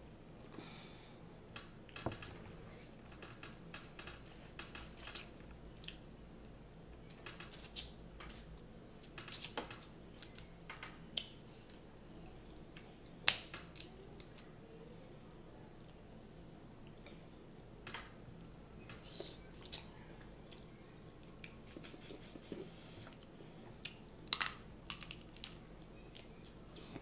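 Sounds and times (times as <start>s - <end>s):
shell snapping crack: 13.2s - 14.4s, 24.3s - 25.6s
crab shell clicks and crackles: 24.2s - 25.6s.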